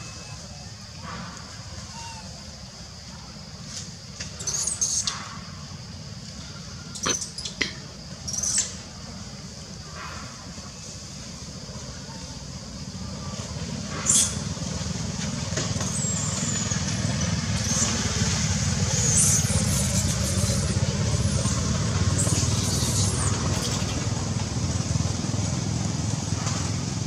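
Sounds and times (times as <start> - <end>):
monkeys squealing: 0.0 - 0.6, 1.8 - 2.4, 18.9 - 21.5, 22.2 - 24.0.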